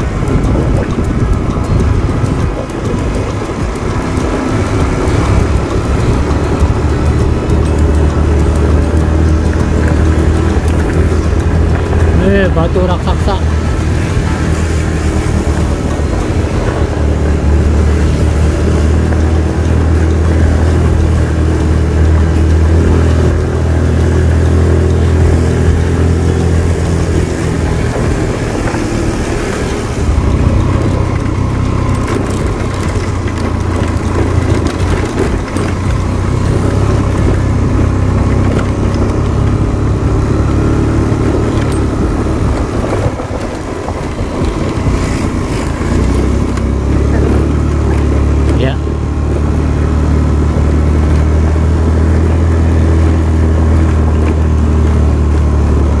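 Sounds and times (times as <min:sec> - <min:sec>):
road noise: 0:00.0 - 0:56.0
vehicle engine running: 0:00.0 - 0:56.0.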